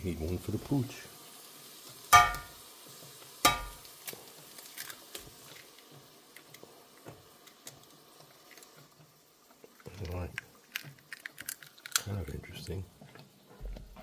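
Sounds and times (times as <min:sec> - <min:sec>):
food sizzling in pan: 0:00.0 - 0:14.0
egg knocking on frying pan: 0:02.1 - 0:02.6, 0:03.4 - 0:03.8
egg cracking open: 0:03.4 - 0:12.8.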